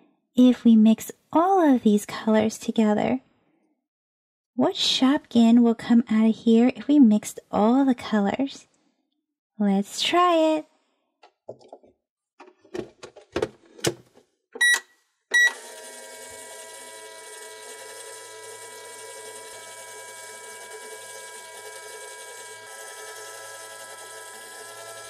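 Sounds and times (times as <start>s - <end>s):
plastic clicks and knocks: 11.2s - 14.2s
toy microwave humming with tones: 14.6s - 25.0s.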